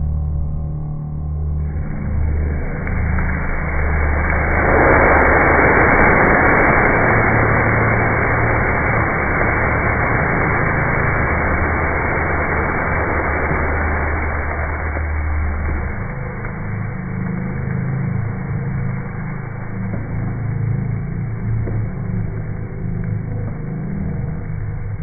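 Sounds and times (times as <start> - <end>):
low steady hum: 0.0 - 25.0
rushing hiss of flame: 1.8 - 19.9.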